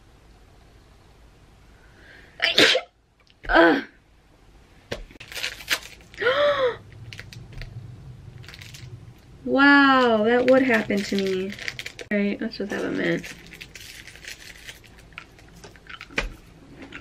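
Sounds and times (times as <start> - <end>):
woman sneezing: 2.4 - 2.9
rustling: 4.9 - 17.0.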